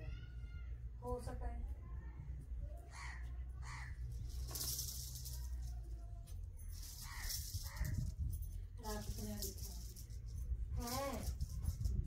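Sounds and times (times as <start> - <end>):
low steady rumble: 0.0 - 12.0
crow cawing: 2.9 - 4.0, 7.0 - 8.0.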